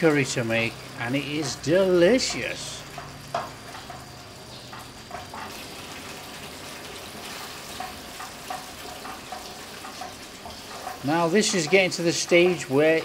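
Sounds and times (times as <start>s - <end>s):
sauce simmering in a frying pan: 0.0s - 13.0s
wooden spoon stirring sauce: 7.1s - 13.0s.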